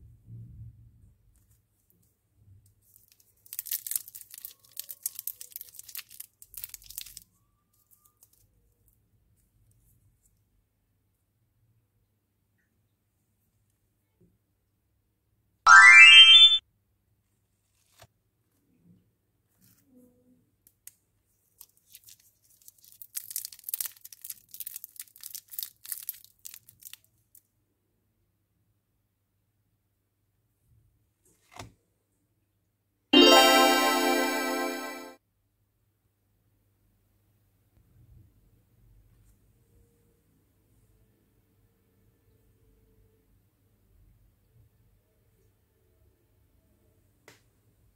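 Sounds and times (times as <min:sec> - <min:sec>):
wrapper crinkling and tearing: 0:02.8 - 0:07.2, 0:21.6 - 0:27.1.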